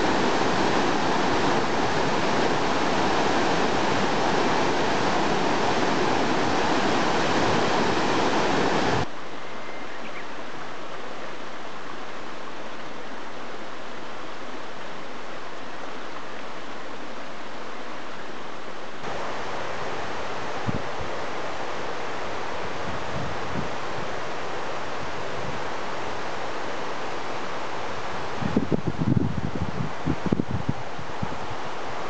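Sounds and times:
river rapids roaring: 0:00.0 - 0:09.1, 0:18.4 - 0:28.7.

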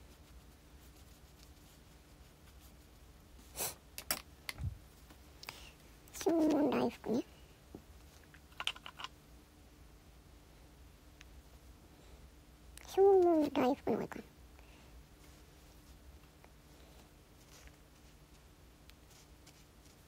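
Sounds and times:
small objects clicking on a desk: 0:04.0 - 0:04.6, 0:08.3 - 0:09.2.

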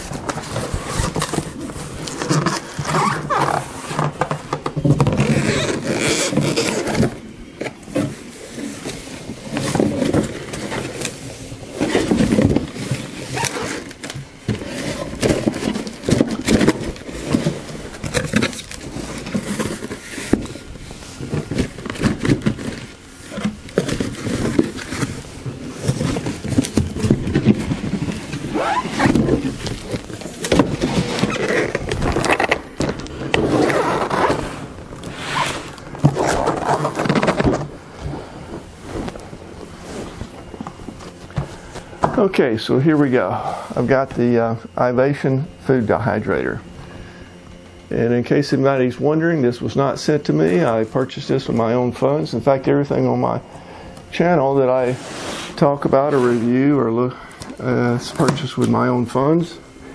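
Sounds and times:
cardboard box rustling and knocking: 0:21.2 - 0:34.4, 0:35.9 - 0:37.8.

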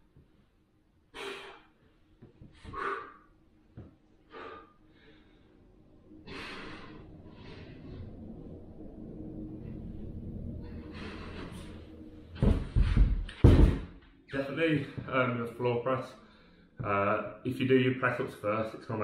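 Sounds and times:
man breathing out hard: 0:02.6 - 0:03.3, 0:06.2 - 0:08.2.

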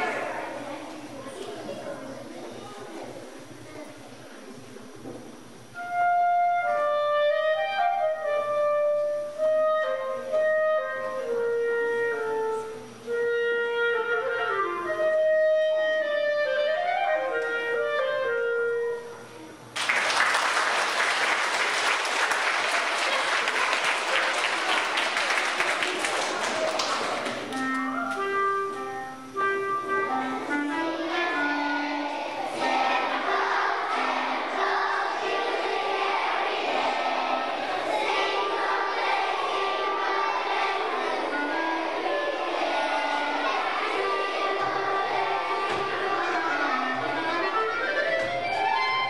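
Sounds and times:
low woodwind notes: 0:05.4 - 0:19.7, 0:22.4 - 0:49.0
solo clarinet melody: 0:05.8 - 0:19.5, 0:27.5 - 0:32.0, 0:46.2 - 0:49.0
audience applause: 0:19.8 - 0:27.6.

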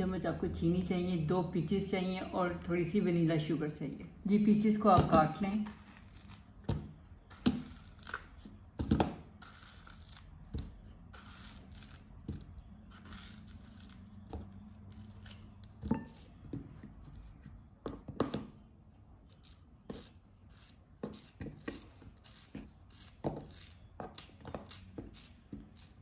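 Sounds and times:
knife cutting fruit: 0:05.1 - 0:17.4.

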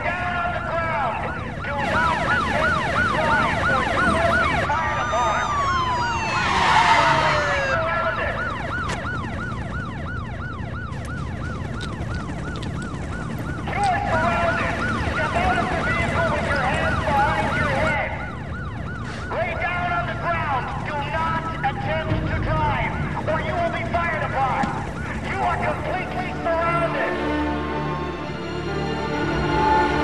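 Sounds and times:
emergency sirens yelping: 0:00.0 - 0:30.0
tone gliding downward: 0:01.8 - 0:18.7.

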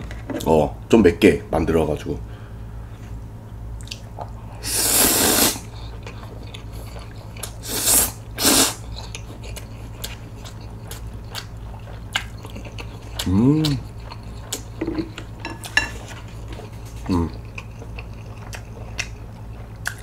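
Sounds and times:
person slurping noodles: 0:04.6 - 0:05.7, 0:07.6 - 0:08.8
wet chewing: 0:05.6 - 0:20.0.

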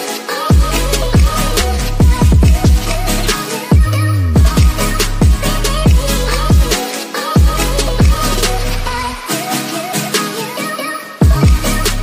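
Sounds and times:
electronic music: 0:00.0 - 0:12.0
deep kick drums: 0:00.5 - 0:03.0, 0:03.7 - 0:06.8, 0:07.4 - 0:08.3, 0:11.2 - 0:11.7.

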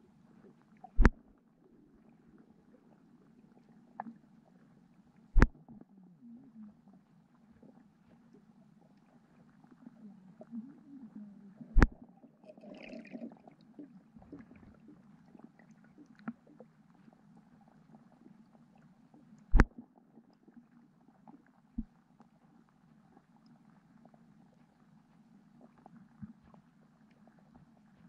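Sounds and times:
underwater low rumble: 0:00.0 - 0:28.0
faint ticks: 0:13.8 - 0:28.0.

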